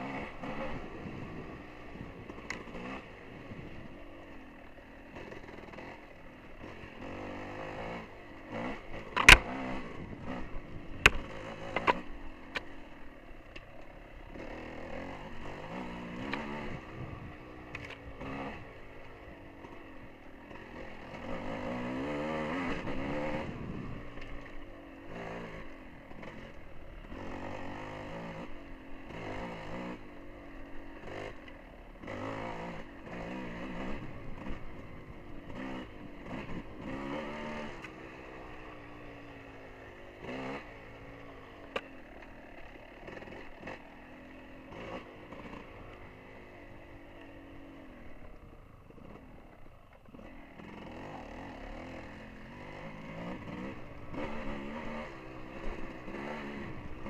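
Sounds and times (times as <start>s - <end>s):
dirt bike engine revving: 0.0s - 57.0s
sharp click: 9.1s - 9.5s.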